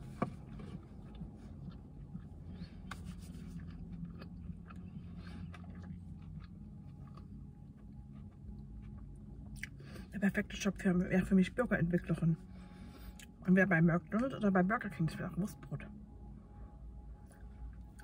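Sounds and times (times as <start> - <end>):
low hum inside car: 0.0 - 18.0
chewing food: 0.1 - 10.0.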